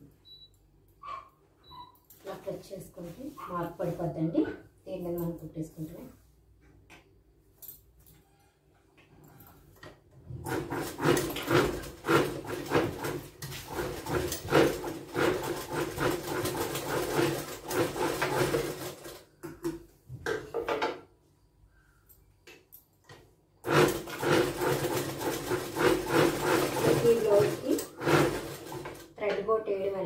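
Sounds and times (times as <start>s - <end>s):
sewing machine clatter: 10.4s - 19.3s, 23.6s - 29.2s.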